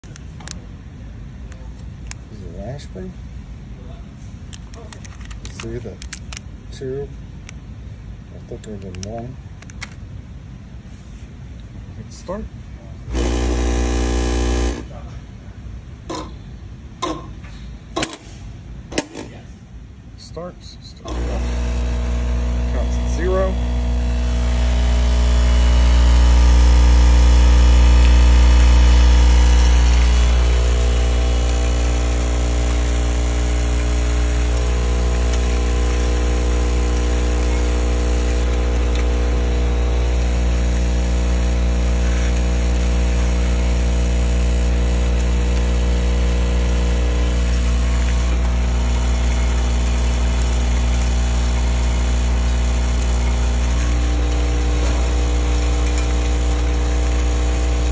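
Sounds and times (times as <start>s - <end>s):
machine motors humming: 13.1s - 15.0s, 21.0s - 57.9s.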